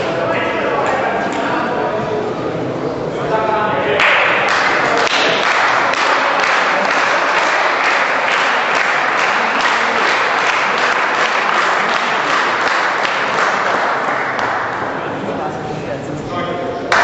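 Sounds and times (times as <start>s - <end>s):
crowd applauding: 4.0s - 15.2s.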